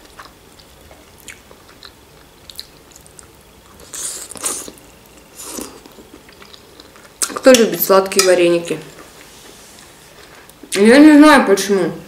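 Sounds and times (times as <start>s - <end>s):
mouth clicks and chewing: 0.0s - 3.3s.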